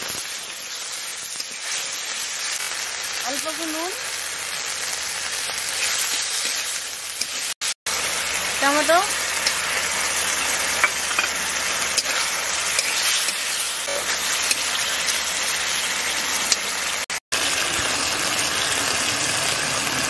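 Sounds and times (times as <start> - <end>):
food sizzling in oil: 0.0 - 20.0
metal spatula scraping wok: 9.2 - 15.8.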